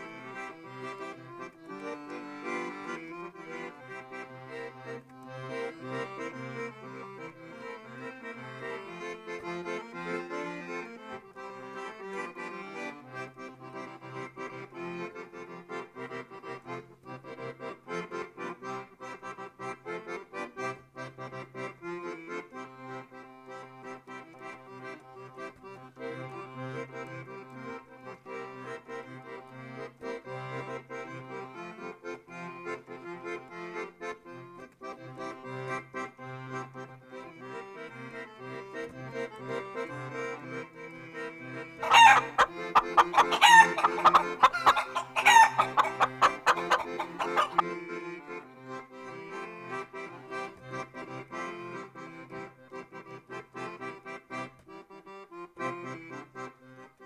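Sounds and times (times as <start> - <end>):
accordion music: 0.0 - 57.0
chickens clucking: 41.8 - 47.7.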